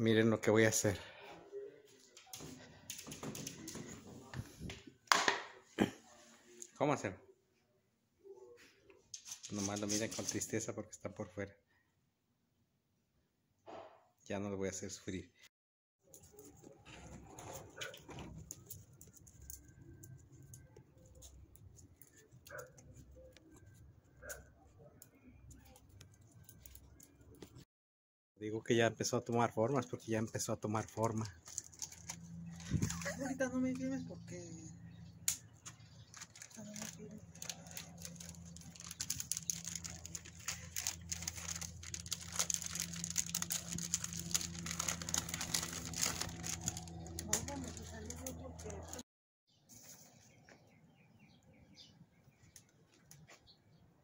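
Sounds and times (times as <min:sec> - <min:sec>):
plastic wrapper crinkling: 0:30.2 - 0:33.4, 0:35.6 - 0:49.0.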